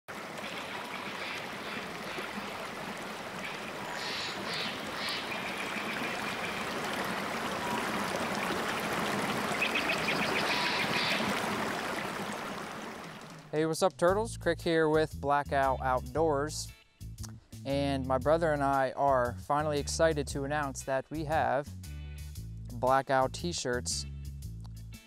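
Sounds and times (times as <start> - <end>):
creek water rushing: 0.1 - 13.5.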